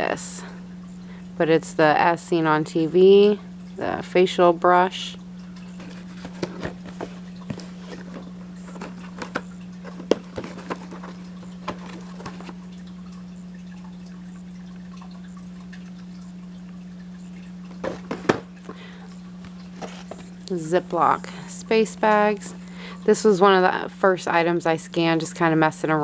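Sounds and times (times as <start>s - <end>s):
steady low hum: 0.0s - 26.0s
packaged products clicking and tapping: 5.8s - 12.6s.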